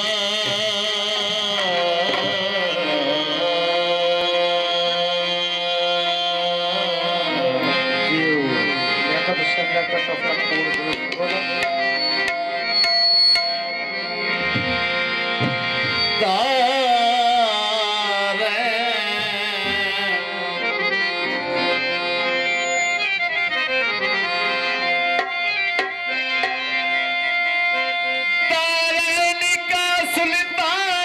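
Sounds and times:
man singing wordless notes: 0.0 - 11.6, 16.1 - 22.0, 28.4 - 31.0
harmonium melody: 0.0 - 31.0
tabla: 0.0 - 31.0
bass drum thuds: 14.5 - 16.0.

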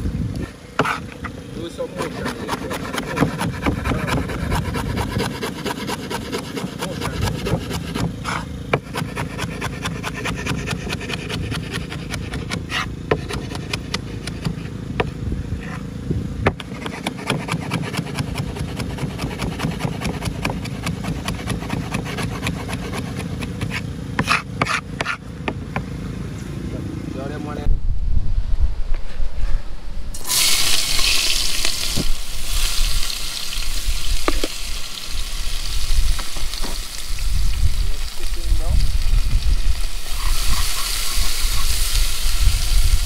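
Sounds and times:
cleaver chopping on wooden board: 0.8 - 1.0, 2.0 - 15.1, 16.4 - 25.9.

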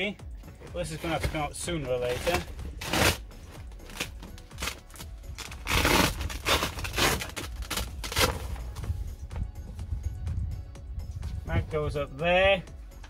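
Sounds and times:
faint background music: 0.0 - 13.0
cushion scraping and bumping: 0.5 - 9.2.

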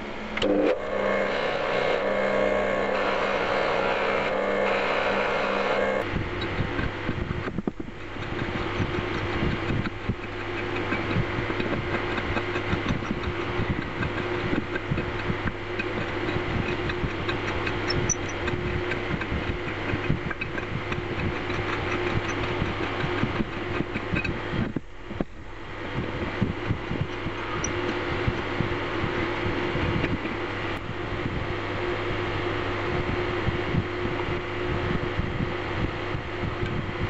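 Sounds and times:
low machine hum: 0.0 - 37.0
tool scratching on metal: 0.7 - 24.6, 26.6 - 30.6.

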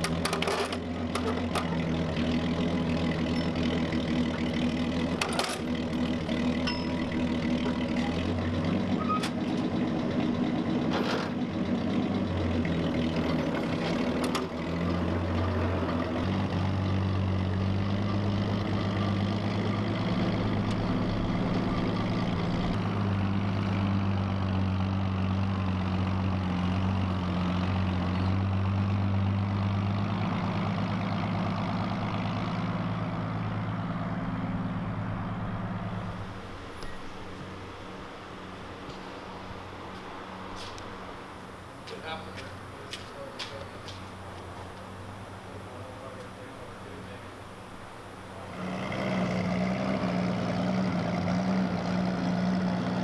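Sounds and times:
forklift engine running: 0.0 - 53.0
sharp metal clanks: 6.6 - 7.2.

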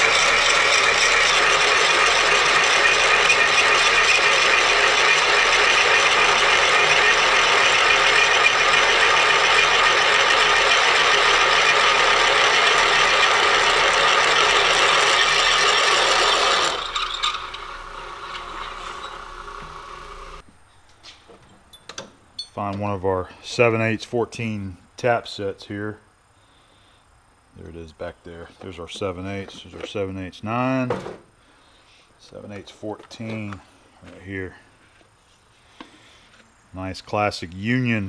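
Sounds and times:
machine gear whine: 0.0 - 20.4
milling machine cutting chatter: 0.0 - 20.4.

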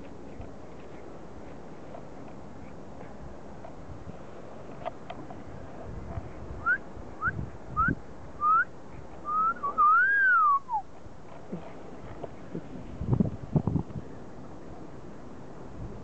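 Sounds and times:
person whistling: 6.6 - 10.8.

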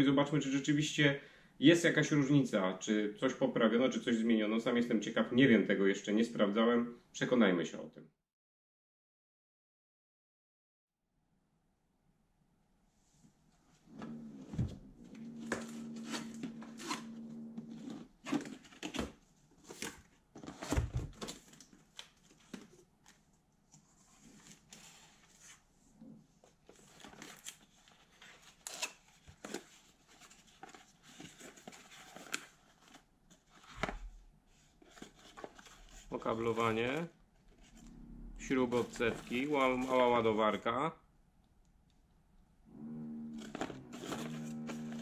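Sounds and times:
steady low whine: 37.4 - 40.2
plastic bags rustling: 38.7 - 40.2.

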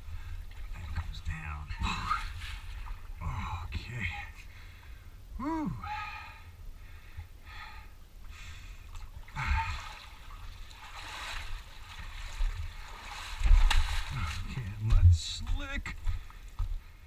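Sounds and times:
water sloshing and splashing: 0.0 - 5.0, 8.2 - 17.0
person breathing: 4.5 - 9.8.

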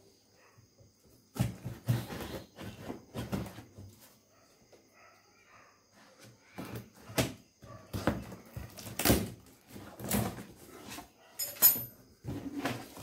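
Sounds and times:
scissors cutting plastic wrap: 8.5 - 10.4.

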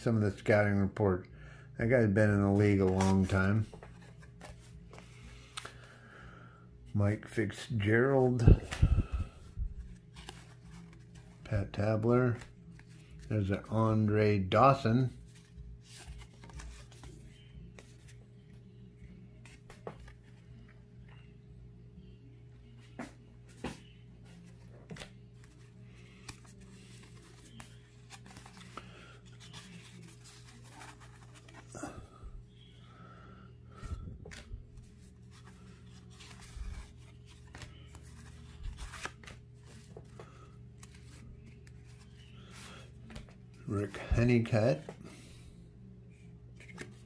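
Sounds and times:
low steady hum: 0.0 - 47.0
cards flipped by hand: 2.5 - 5.9, 9.8 - 11.4, 15.3 - 18.2, 19.4 - 21.2, 22.9 - 31.7, 33.8 - 45.0, 46.5 - 47.0
steady low hum: 3.7 - 11.5.

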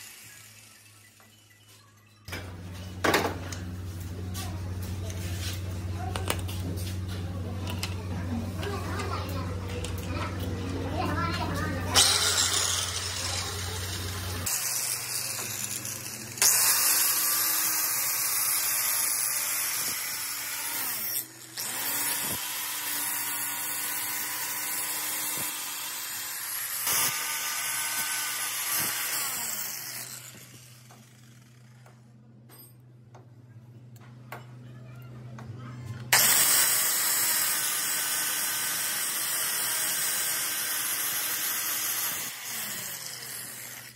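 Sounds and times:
angle grinder grinding steel: 0.0 - 1.7, 8.6 - 31.9, 36.1 - 43.9.

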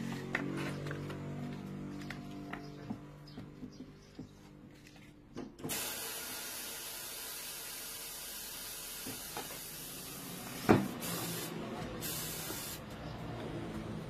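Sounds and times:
air hissing out: 5.7 - 12.9.

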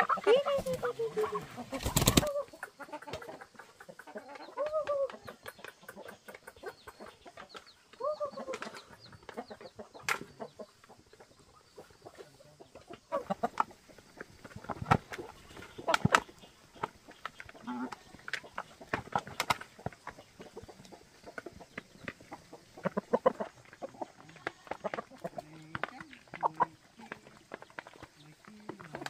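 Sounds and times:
chicken drawn-out calls: 0.0 - 29.0
chickens clucking: 0.0 - 29.0
beaks pecking plastic bowl: 13.2 - 29.0.

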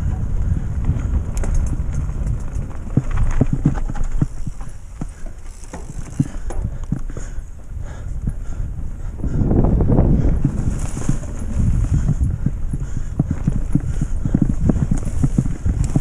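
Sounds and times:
bike knocks and rattles: 0.0 - 16.0
wind rumble on microphone: 0.0 - 16.0.

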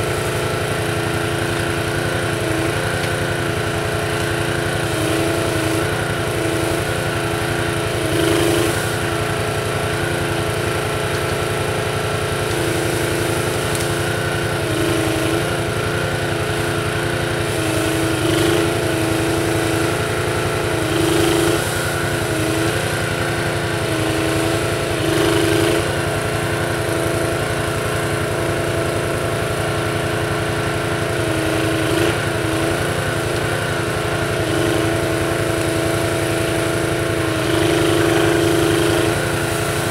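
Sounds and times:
small petrol engine running: 0.0 - 39.9.

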